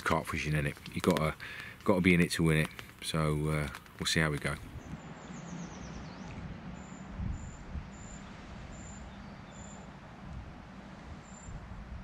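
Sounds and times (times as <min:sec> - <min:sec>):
wind buffeting microphone: 0:04.4 - 0:12.0.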